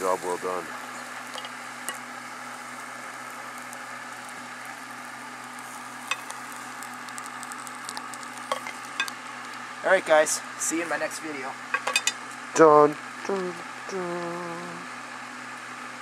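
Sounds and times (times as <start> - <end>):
sharp crackles: 0.0 - 9.8
hot plastic sizzling: 0.0 - 12.6.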